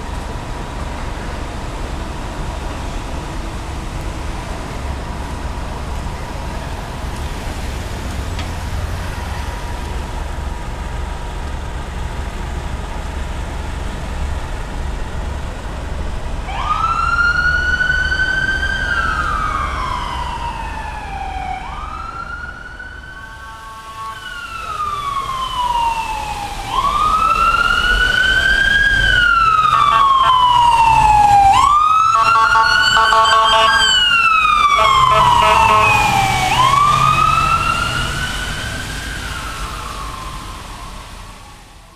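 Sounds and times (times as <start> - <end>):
low rumble of vehicles: 0.0 - 41.9
pulsing siren: 16.5 - 41.9
siren wailing: 16.5 - 41.9.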